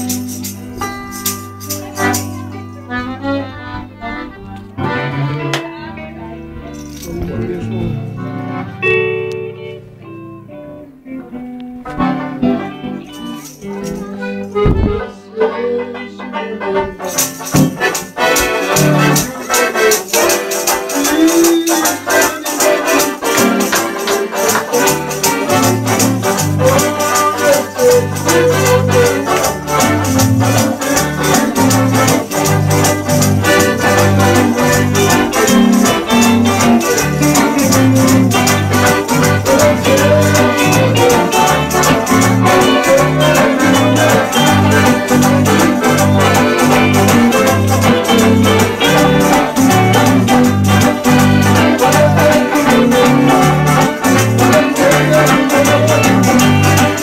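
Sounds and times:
electric guitars: 0.0 - 57.0
live band playing gospel music: 0.0 - 57.0
piano accordion: 0.0 - 57.0
rattling percussion beat: 17.2 - 57.0.

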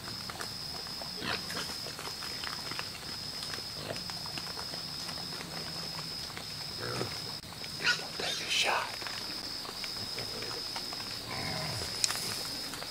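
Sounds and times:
clicks and crunches: 0.0 - 8.0, 8.9 - 12.9
insect trill: 0.0 - 12.9
hogs squealing and grunting: 1.2 - 8.7, 11.2 - 12.6.

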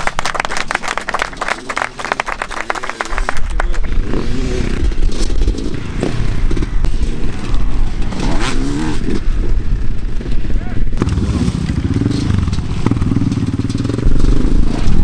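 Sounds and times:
crowd clapping: 0.0 - 4.0
dirt bike engines revving: 0.0 - 15.0.

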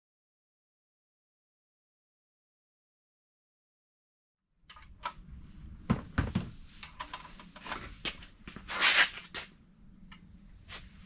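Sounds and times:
metal tools clicking and knocking: 6.8 - 7.6.

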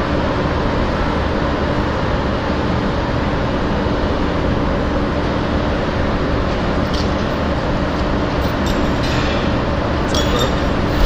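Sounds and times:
machinery and ventilation rumble: 0.0 - 11.0.

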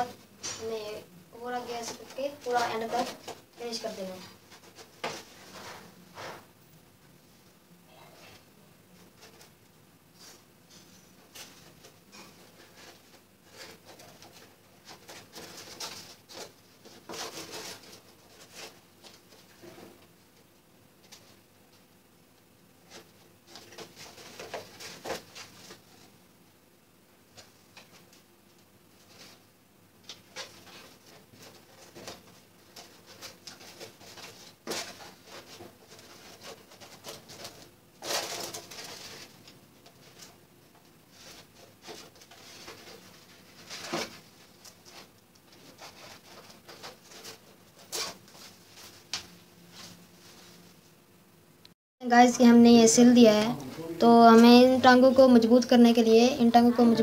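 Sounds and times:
paper rustling and crinkling: 1.5 - 6.4, 10.2 - 20.2, 22.8 - 26.1, 28.9 - 50.8.

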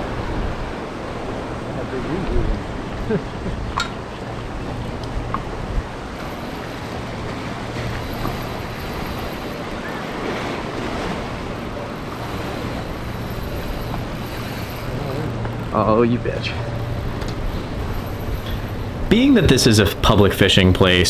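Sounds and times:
wind on microphone: 0.0 - 15.7
surf washing over rocks: 0.0 - 21.0.

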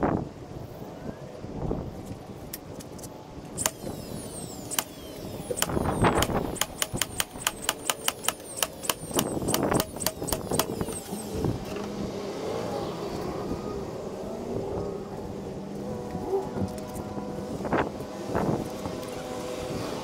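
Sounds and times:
nail gun firing into plywood: 3.6 - 11.2.

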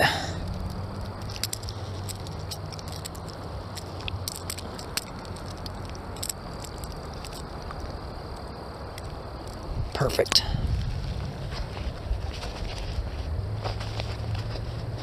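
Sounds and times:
low outdoor rumble: 0.0 - 15.0
clicks and rustles handling fish: 0.5 - 9.6.

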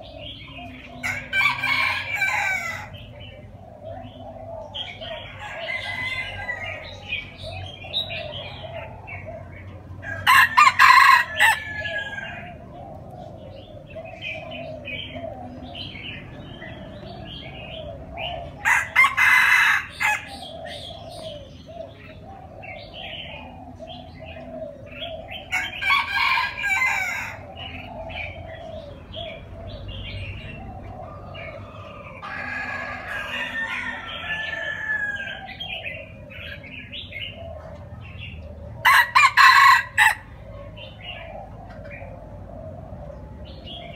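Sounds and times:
rooster crowing: 1.0 - 3.0, 5.3 - 7.1, 10.0 - 12.6, 18.6 - 20.4, 25.5 - 27.5, 32.0 - 35.7, 38.8 - 40.3.

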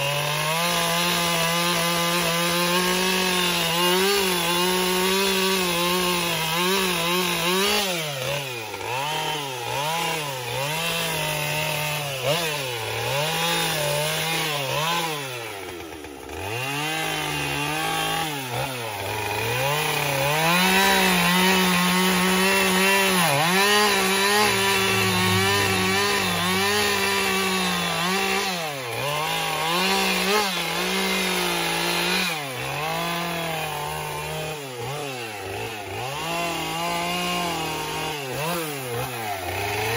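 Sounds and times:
chainsaw cutting wood: 0.0 - 39.9.

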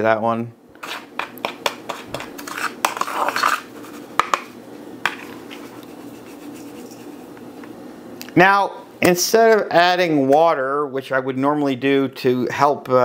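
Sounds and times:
spoon scraping spices in dish: 0.8 - 7.7.

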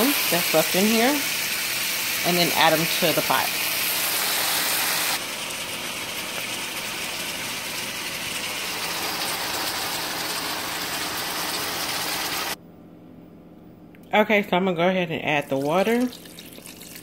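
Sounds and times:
chicken sizzling in frying pan: 0.0 - 12.6.

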